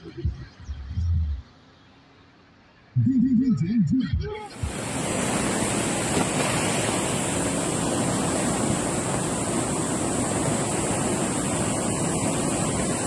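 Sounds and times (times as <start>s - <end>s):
floodwater rushing: 4.6s - 13.0s.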